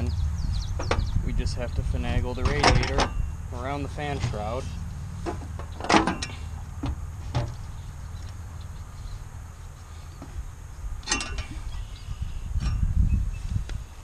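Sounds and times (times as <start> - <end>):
wind on microphone: 0.0 - 3.4, 10.4 - 14.0.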